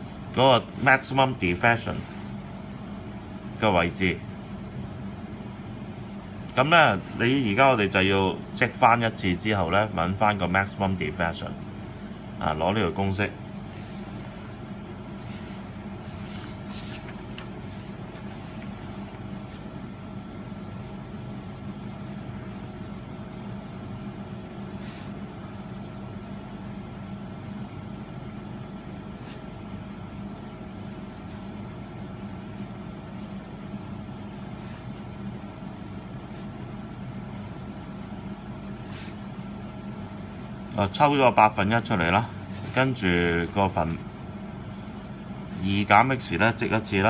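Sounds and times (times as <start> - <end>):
pencil scratching on paper: 22.0 - 25.2, 29.2 - 39.2.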